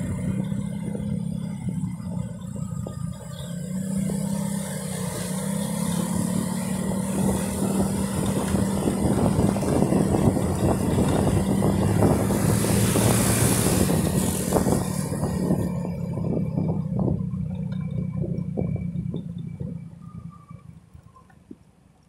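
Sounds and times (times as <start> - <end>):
vehicle engine running: 0.0 - 21.8
wind buffeting microphone: 6.7 - 19.8.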